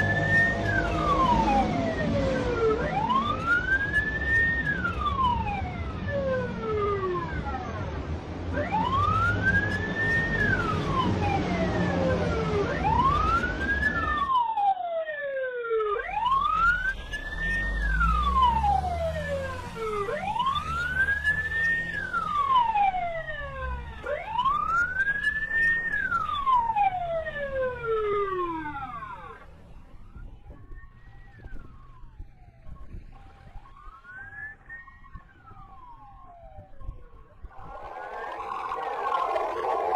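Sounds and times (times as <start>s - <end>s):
emergency siren wailing: 0.0s - 39.9s
low rumble: 37.4s - 39.9s.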